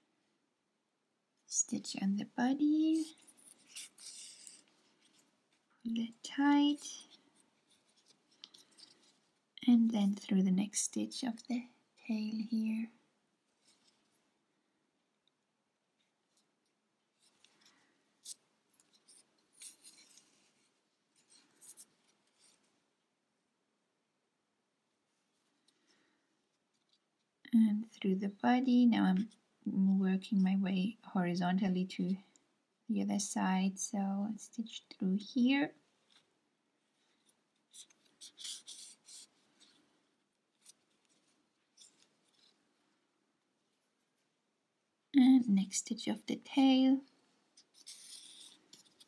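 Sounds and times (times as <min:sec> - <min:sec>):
yarn rustling through stitches: 0:01.3 - 0:14.4, 0:15.8 - 0:23.0, 0:32.9 - 0:49.0.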